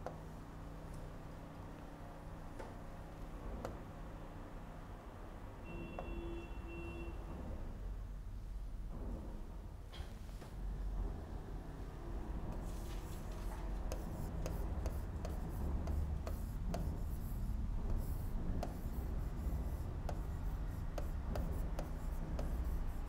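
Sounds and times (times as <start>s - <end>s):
stylus tapping and scratching screen: 12.5s - 23.0s.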